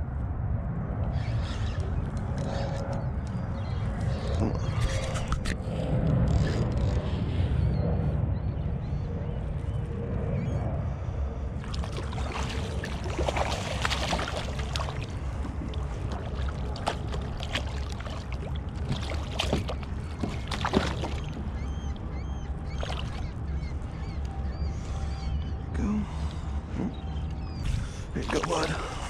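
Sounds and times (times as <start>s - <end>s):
wind rumble on microphone: 0.0s - 29.0s
fish splashing at water surface: 11.6s - 21.4s.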